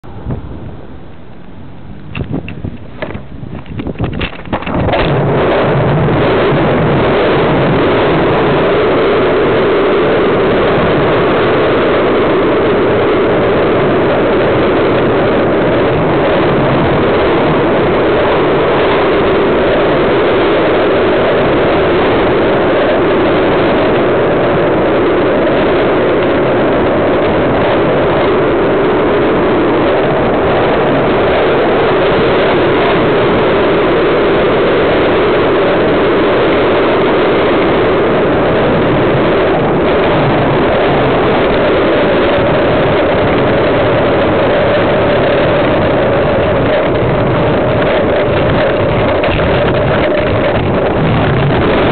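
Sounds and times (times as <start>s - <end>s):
skateboard wheels rolling on asphalt: 0.0s - 51.9s.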